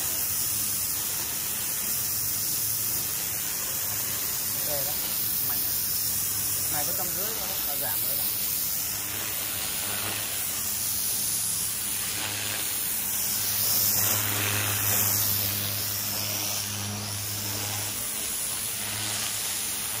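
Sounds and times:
pressure washer jet hissing: 0.0 - 20.0
machine low hum: 0.7 - 20.0.

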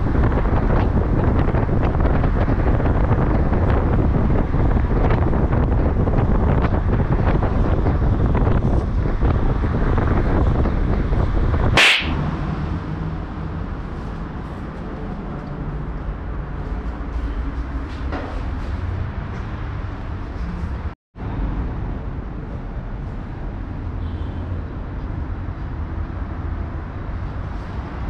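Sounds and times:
wind buffeting microphone: 0.0 - 12.3
car road noise: 0.0 - 24.1
short sharp hiss: 11.8 - 12.2.

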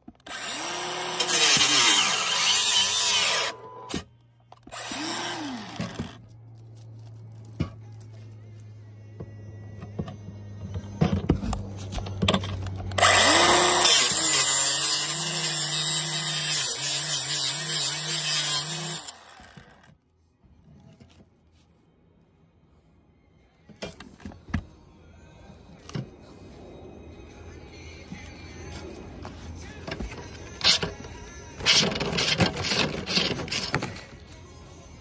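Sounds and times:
circular saw cutting metal: 0.3 - 3.7, 4.7 - 6.1, 13.0 - 19.7.

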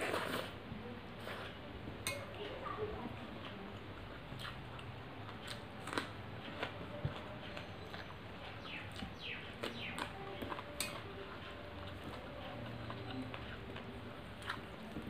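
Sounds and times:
fingers mixing rice on metal plate: 3.4 - 15.0
person chewing: 3.9 - 15.0.

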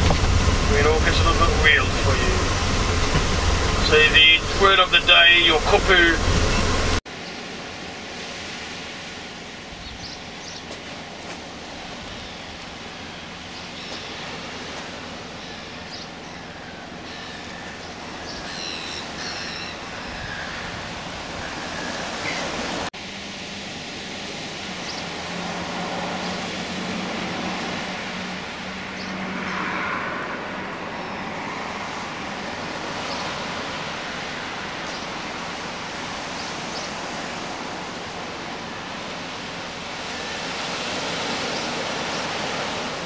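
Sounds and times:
low steady hum: 0.0 - 7.0
outdoor rushing noise: 0.0 - 7.0.

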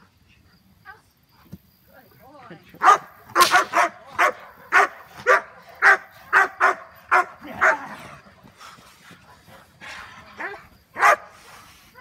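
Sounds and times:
dog barking: 2.8 - 7.8, 10.4 - 11.4.

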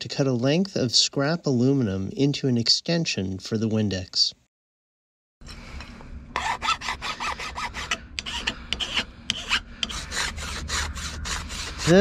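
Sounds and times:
metal file rasping on aluminium: 6.4 - 12.0.

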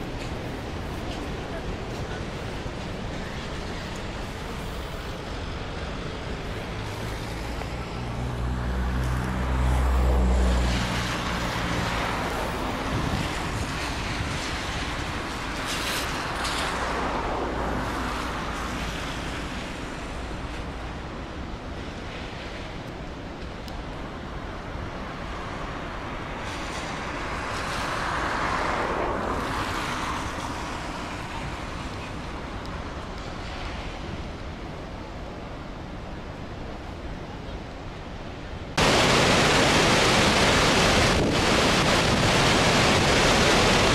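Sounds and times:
river rushing: 0.0 - 43.9
wind buffeting microphone: 12.1 - 16.0, 40.1 - 43.9.

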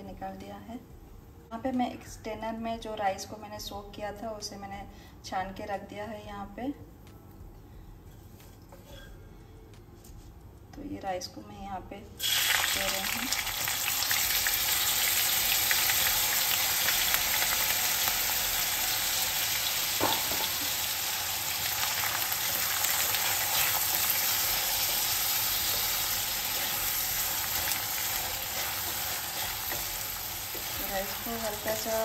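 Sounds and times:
wooden spatula scraping pan: 8.1 - 9.2, 23.2 - 32.0
rice sizzling in hot ghee: 12.2 - 32.0.

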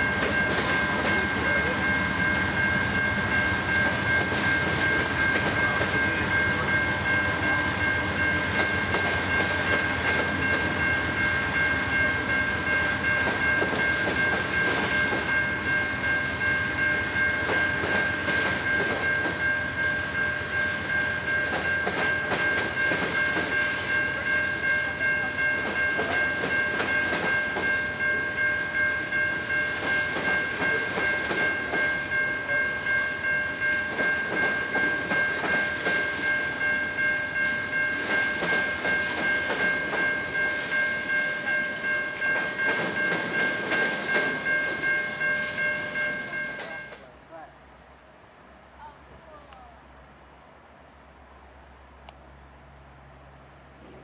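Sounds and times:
train wheels clattering over rail joints: 0.0 - 12.1, 17.2 - 20.2, 20.9 - 46.9
freight train rumbling: 0.0 - 54.0.

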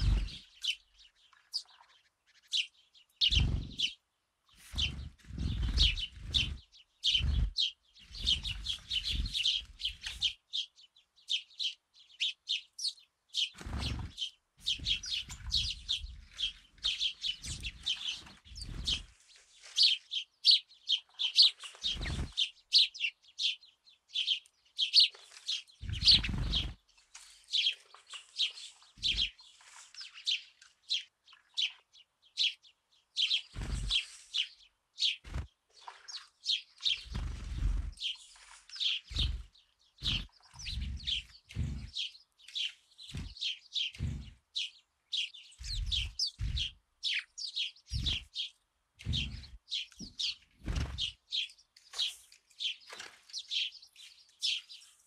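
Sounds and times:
sparrows chirping: 0.0 - 55.0
low thuds and rumbles: 39.1 - 42.0, 44.0 - 44.4, 45.6 - 46.8, 47.9 - 48.3, 49.0 - 49.6.

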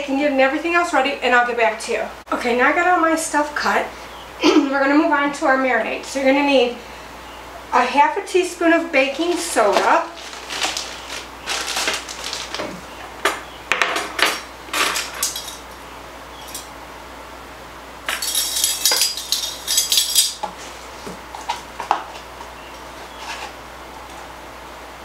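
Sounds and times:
handling clicks and knocks: 11.9 - 15.8, 18.1 - 22.2
metal measuring spoons jangling: 15.0 - 15.7, 16.4 - 16.7, 18.1 - 20.4.

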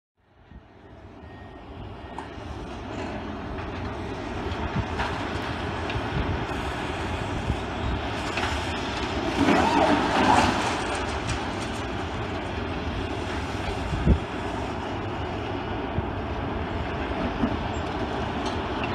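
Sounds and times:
excavator diesel engine running: 0.3 - 18.9.

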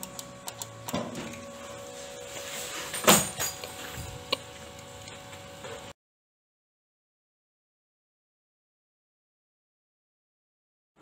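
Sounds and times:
computer fan hum: 0.0 - 6.0.

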